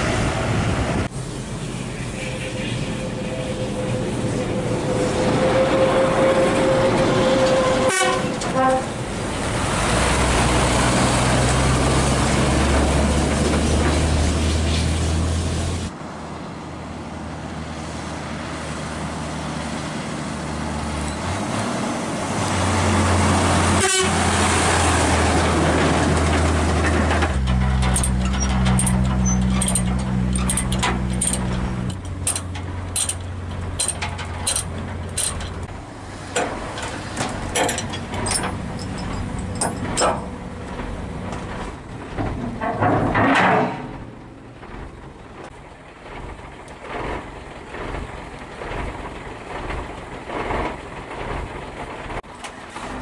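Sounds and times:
diesel truck engine running: 6.8 - 53.0
metal chain clanking and rattling: 25.8 - 35.7, 36.3 - 51.5.

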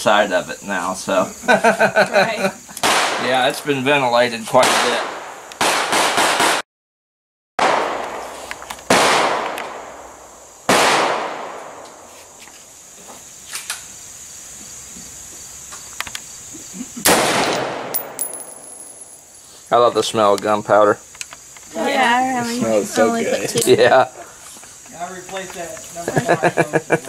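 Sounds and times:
rifle shots echoing: 2.8 - 3.4, 4.6 - 6.6, 7.6 - 8.3, 8.9 - 11.8, 17.1 - 19.0.

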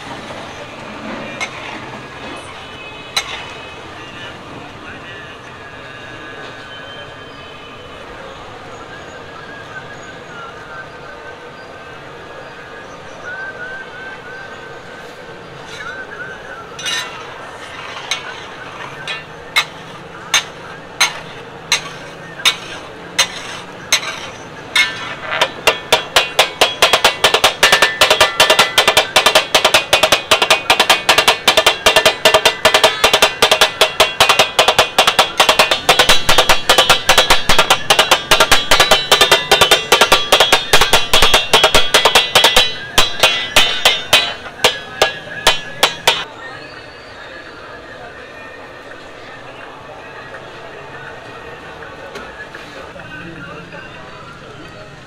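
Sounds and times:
metal spatulas clanking on griddle: 1.4 - 1.8, 3.2 - 3.6, 16.8 - 46.3.

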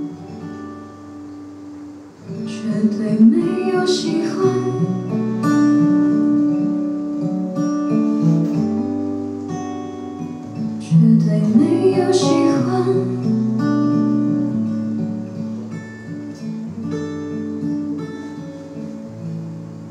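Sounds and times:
acoustic guitar chords: 0.0 - 19.9
woman singing: 2.3 - 5.3, 10.7 - 14.6, 16.3 - 18.6.

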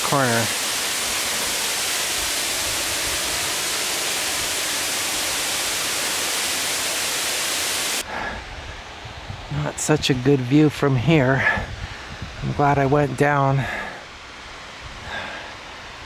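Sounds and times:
waterfall rushing: 0.0 - 11.0
faint hiss: 0.0 - 16.0.

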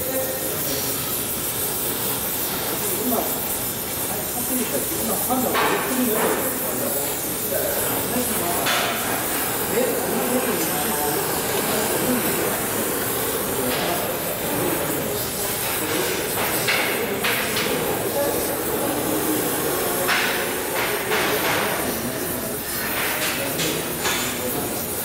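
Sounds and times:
welding torch flame hissing: 0.0 - 25.0.

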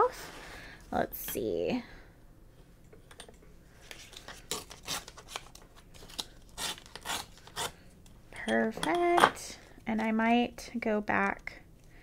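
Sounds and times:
paper tearing: 4.4 - 7.7.

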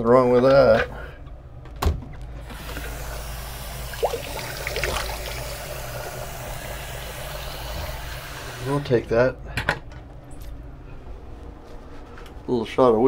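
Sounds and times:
tap water running into sink: 2.6 - 8.6.

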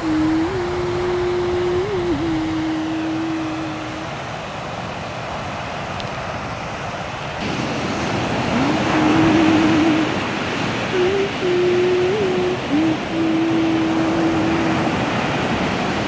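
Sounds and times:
thin wavering tone: 0.0 - 4.5, 8.5 - 15.7
ocean surf breaking on beach: 0.0 - 16.0.

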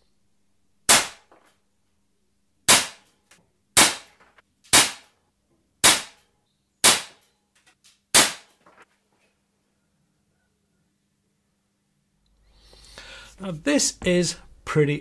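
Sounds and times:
air pistol shots: 0.9 - 1.4, 2.7 - 3.1, 3.8 - 5.1, 5.8 - 6.2, 6.8 - 7.2, 8.1 - 8.6.

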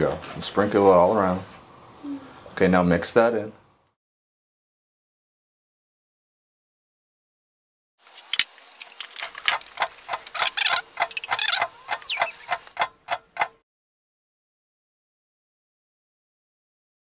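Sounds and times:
spoon scraping mixing bowl: 9.0 - 12.8
brief falling squeak: 10.4 - 12.5.

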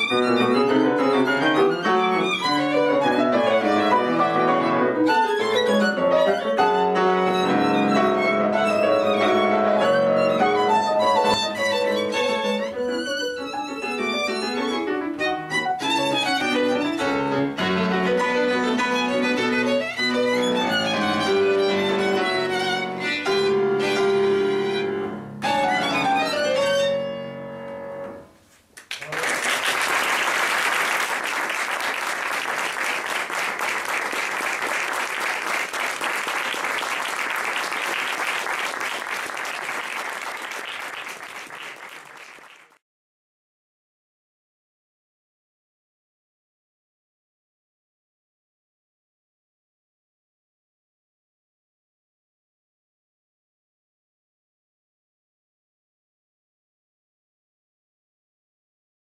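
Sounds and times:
violin and piano playing: 0.0 - 28.1
audience applause: 28.8 - 42.8.

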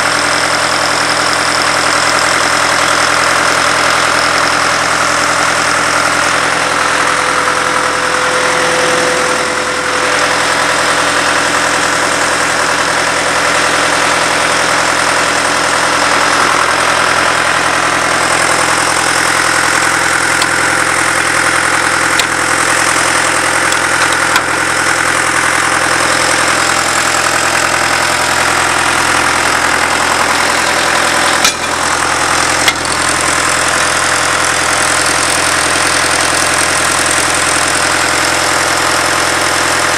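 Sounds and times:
drill rig engine idling: 0.0 - 39.9
sharp clicks or knocks: 23.7 - 24.6, 31.2 - 31.8, 32.6 - 32.9.

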